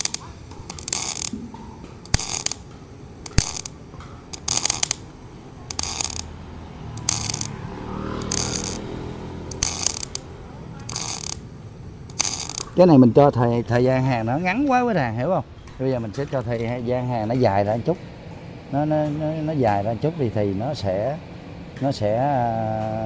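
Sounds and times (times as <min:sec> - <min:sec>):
welding arc crackling bursts: 0:00.0 - 0:14.9.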